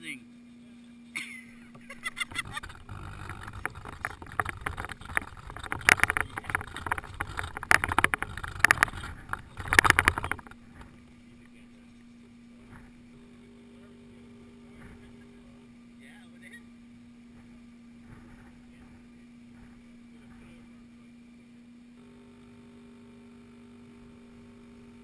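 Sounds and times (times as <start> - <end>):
steady low hum: 0.0 - 25.0
camera rattling over rough ground: 1.7 - 13.2, 17.3 - 20.9.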